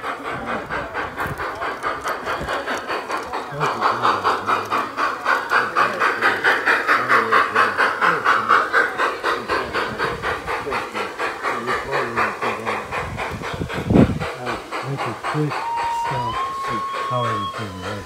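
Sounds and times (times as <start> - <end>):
model steam locomotive chuffing: 0.0 - 18.0.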